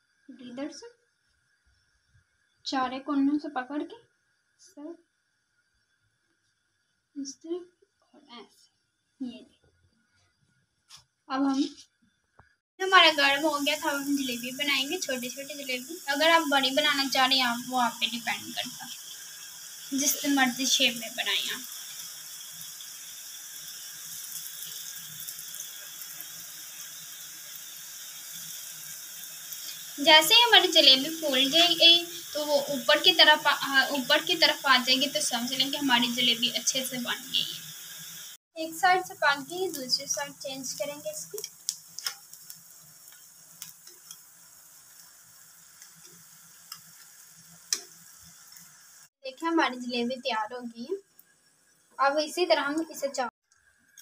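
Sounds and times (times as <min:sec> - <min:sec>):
food sizzling in hot oil: 0:12.8 - 0:54.0.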